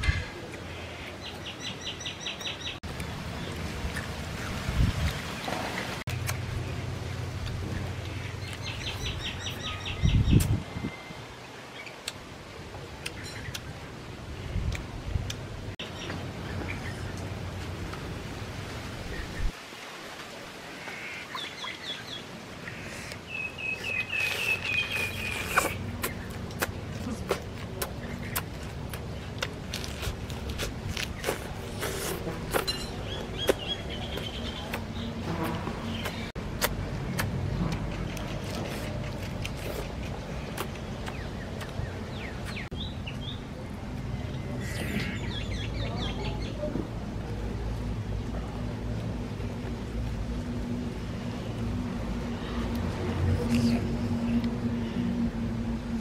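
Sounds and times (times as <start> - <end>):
birds chirping: 20.8 - 36.4, 37.5 - 46.7.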